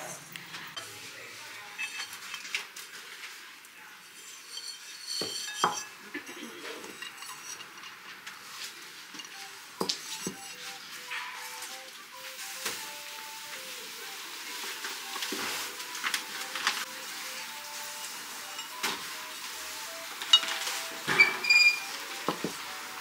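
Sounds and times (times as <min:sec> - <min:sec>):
ceramic bowls clinking: 0:04.2 - 0:08.1.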